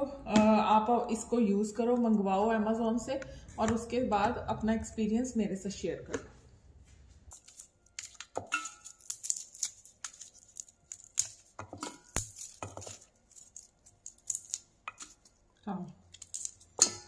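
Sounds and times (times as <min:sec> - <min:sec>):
cloves clinking into metal bowl: 0:07.3 - 0:09.4, 0:16.3 - 0:17.0
garlic skins crackling: 0:07.3 - 0:17.0.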